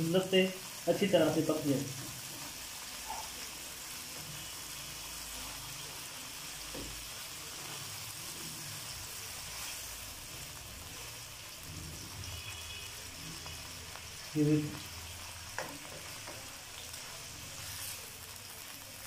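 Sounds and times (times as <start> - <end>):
chicken sizzling in oil: 0.0 - 19.0.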